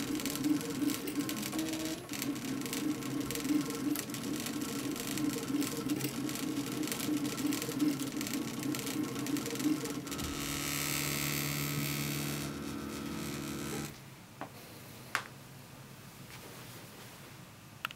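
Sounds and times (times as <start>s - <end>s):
stepper motors whining and buzzing: 0.0s - 14.0s.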